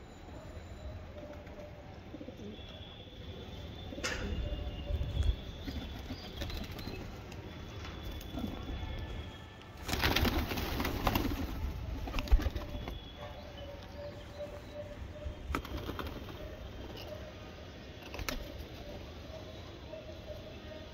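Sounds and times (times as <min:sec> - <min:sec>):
pigeon wingbeats flurry: 0:09.8 - 0:13.0, 0:15.5 - 0:16.4
birds clicking and rustling: 0:09.8 - 0:13.1, 0:15.5 - 0:17.2.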